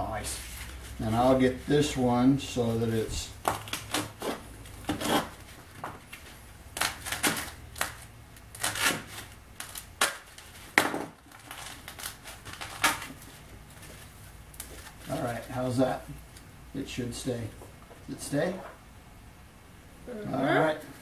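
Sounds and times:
knife cutting packing foam: 0:03.4 - 0:05.5, 0:06.2 - 0:13.3.

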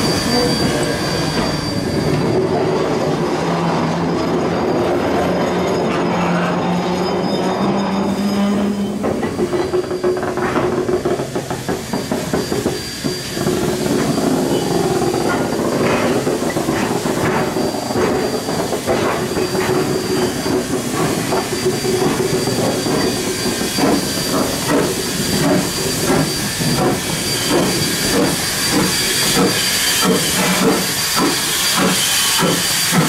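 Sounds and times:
steam hissing: 0:00.0 - 0:33.0.

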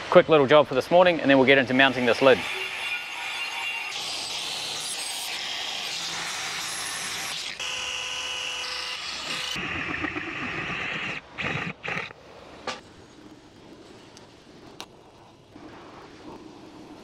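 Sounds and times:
abrasive attachment scrubbing steel: 0:01.5 - 0:09.6
angle grinder cutting metal: 0:01.5 - 0:09.6
cordless drill motor whining: 0:05.3 - 0:09.6.

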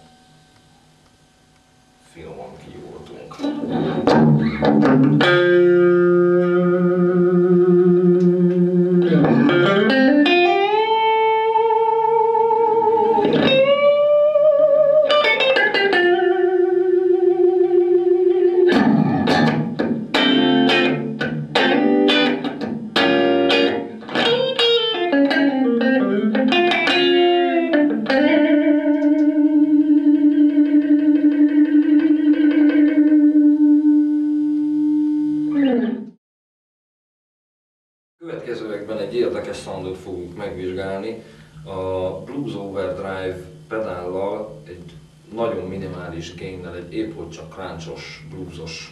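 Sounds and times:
electric guitar lead lines: 0:00.0 - 0:36.2.

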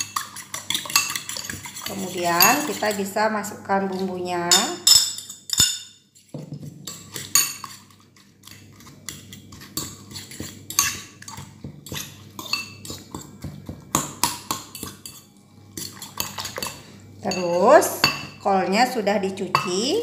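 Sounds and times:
fork clinking against bowl: 0:00.0 - 0:03.0
fork beating eggs: 0:00.0 - 0:19.8.

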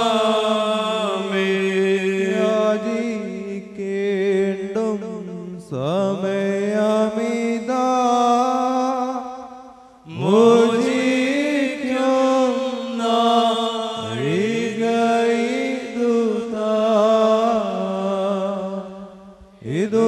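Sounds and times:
congregation chanting a hymn: 0:00.0 - 0:04.0, 0:10.1 - 0:20.0.

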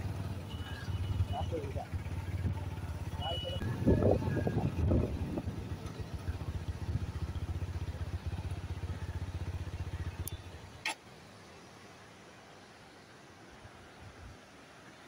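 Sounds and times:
motorcycle engine running: 0:00.0 - 0:10.8.

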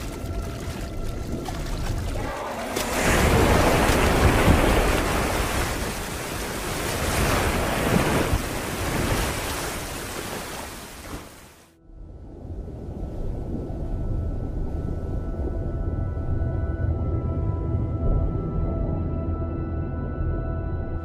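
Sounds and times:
ocean waves surging: 0:01.9 - 0:11.7.

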